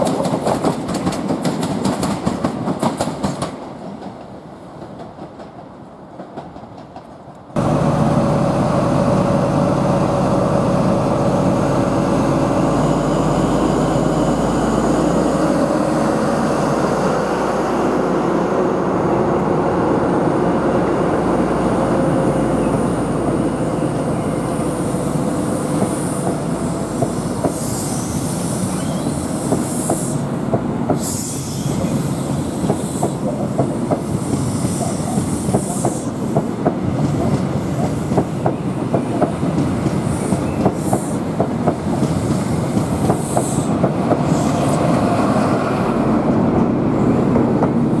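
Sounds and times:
train wheels clicking over rail joints: 0.0 - 7.6, 25.1 - 45.6
hiss: 24.4 - 39.0, 39.9 - 41.3, 42.0 - 44.9.

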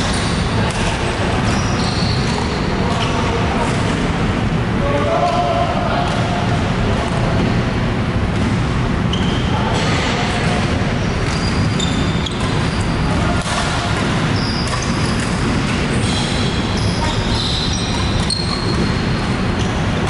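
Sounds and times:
low rumble of hall noise: 0.0 - 20.0
shoe squeaks on court floor: 1.4 - 3.2, 9.1 - 10.0, 11.0 - 19.9
racket hitting shuttlecock: 12.3 - 16.1.

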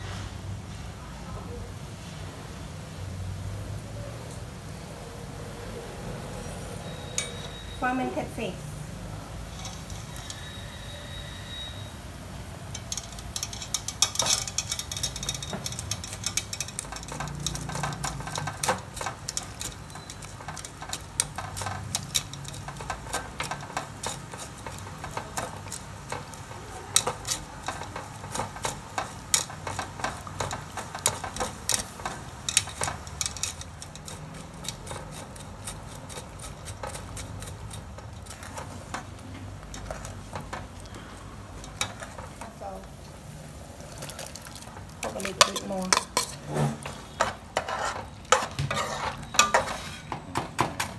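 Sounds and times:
metal spoon scraping strainer: 6.4 - 8.2, 9.2 - 42.8, 45.0 - 50.2
metal clinks: 6.9 - 7.8.

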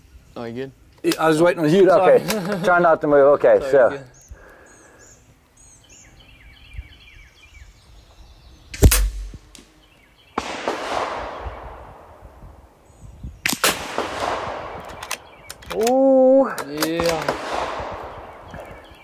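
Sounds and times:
birds chirping: 0.0 - 19.0
rifle shots: 8.8 - 9.4, 10.4 - 12.2, 13.4 - 15.3, 16.8 - 18.5.

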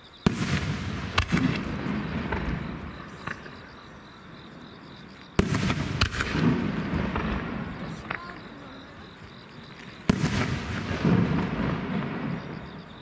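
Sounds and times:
small firework crack: 0.2 - 3.7, 5.0 - 13.0
firework booms with rolling rumble: 0.2 - 13.0.

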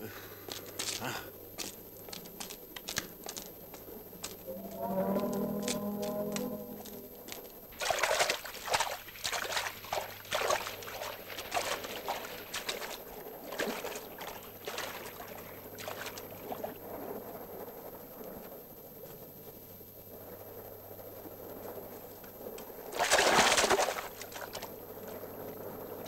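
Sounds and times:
hands paddling water: 7.8 - 16.6.

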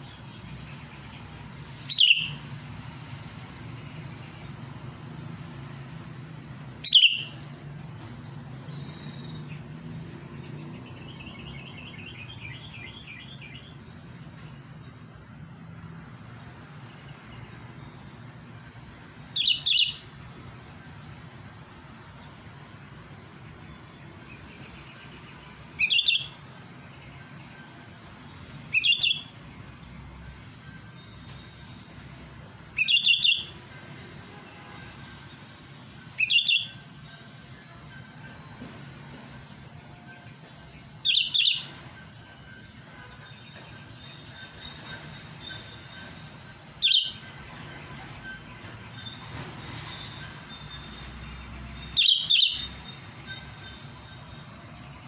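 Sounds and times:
bulbul calling: 1.9 - 2.4, 6.8 - 7.4, 52.0 - 53.8
bulbul sharp calls: 1.9 - 2.4, 6.9 - 7.4.

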